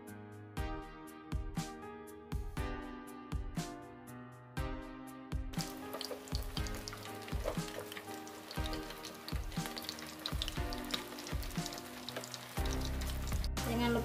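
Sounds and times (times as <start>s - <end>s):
fritters frying in hot oil: 5.6s - 14.0s.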